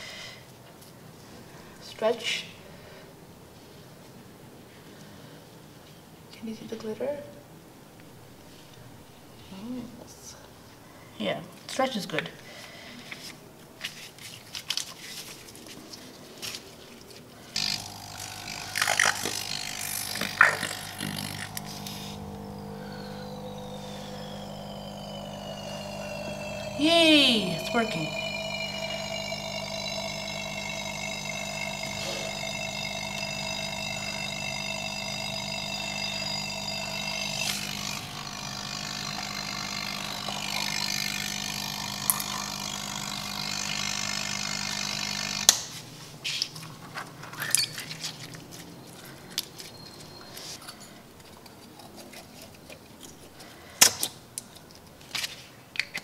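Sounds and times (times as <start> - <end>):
air pump humming: 17.6 - 45.9.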